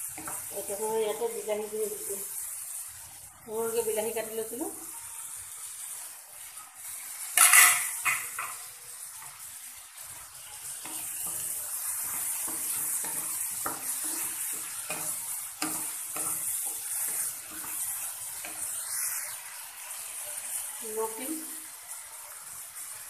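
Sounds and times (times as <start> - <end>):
spatula scraping a pan: 0.0 - 1.2, 6.8 - 21.2
tomatoes sizzling in oil: 0.0 - 23.0.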